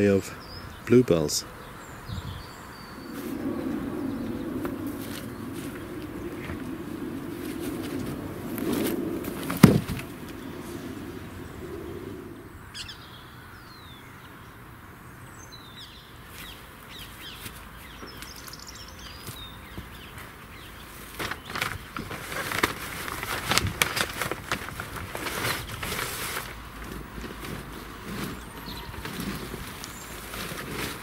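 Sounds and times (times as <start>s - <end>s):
small birds chirping: 0.0s - 22.1s, 27.9s - 31.0s
plastic sheet rustling and clicking: 21.0s - 31.0s.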